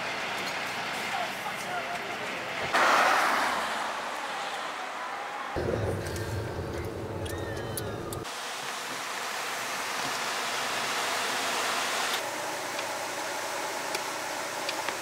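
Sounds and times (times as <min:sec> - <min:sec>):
river rushing hiss: 0:02.7 - 0:05.1, 0:08.2 - 0:15.0.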